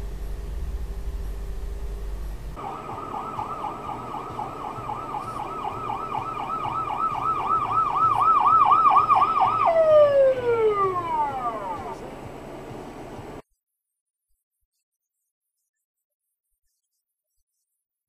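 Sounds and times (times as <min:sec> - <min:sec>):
low vehicle hum: 0:00.0 - 0:13.4
emergency vehicle siren yelping: 0:02.6 - 0:12.1.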